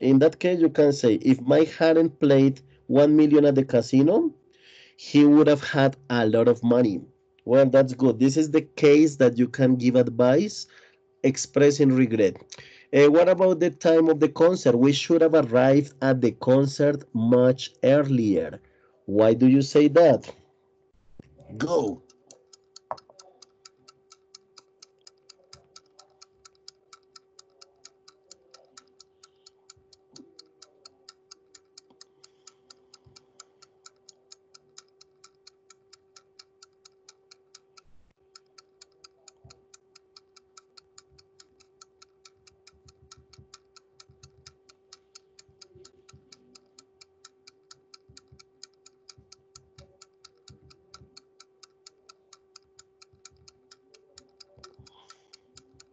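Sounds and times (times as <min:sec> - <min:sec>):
faint clock ticking: 0:00.0 - 0:20.5, 0:21.1 - 0:55.9
steady low hum: 0:00.0 - 0:55.9.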